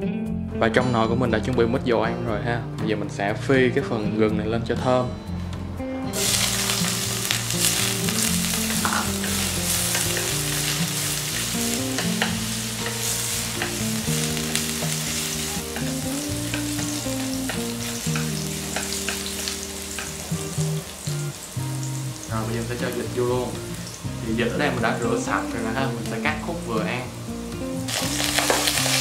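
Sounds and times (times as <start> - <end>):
ginger sizzling in hot oil: 6.2 - 29.0
utensil clicking against pot: 15.7 - 19.3.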